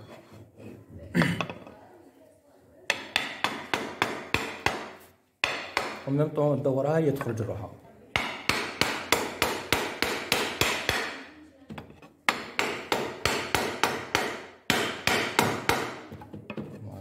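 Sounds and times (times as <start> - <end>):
hammer knocking on wooden plank: 2.9 - 6.0, 8.2 - 16.8.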